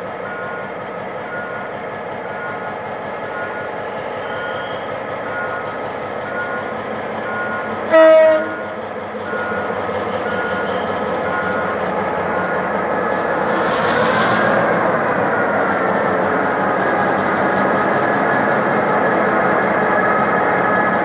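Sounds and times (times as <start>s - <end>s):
diesel locomotive running: 0.0s - 21.0s
short electronic beeps: 3.4s - 5.7s
train horn blast: 7.9s - 8.7s.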